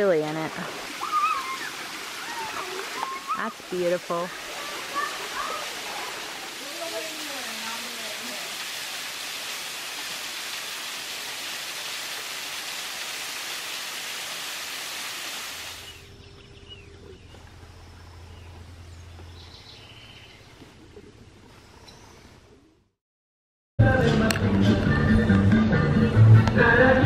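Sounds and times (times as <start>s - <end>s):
waterfall rushing: 0.5s - 15.9s
faint bird chirps: 15.8s - 22.8s
low hum: 15.9s - 22.9s.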